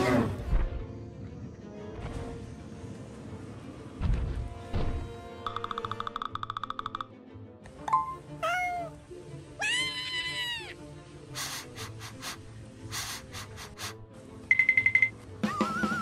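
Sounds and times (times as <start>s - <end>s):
background music: 0.0s - 16.0s
animal crying out: 9.6s - 10.8s.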